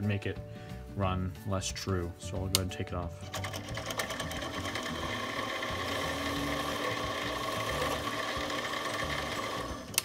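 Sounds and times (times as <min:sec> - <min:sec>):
lathe motor whine: 0:03.4 - 0:10.0
file against spinning metal: 0:03.6 - 0:09.9.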